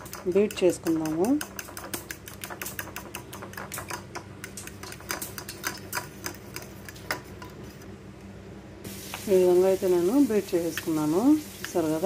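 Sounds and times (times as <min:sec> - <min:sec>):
fork beating eggs in bowl: 0:00.0 - 0:08.0, 0:09.1 - 0:12.0.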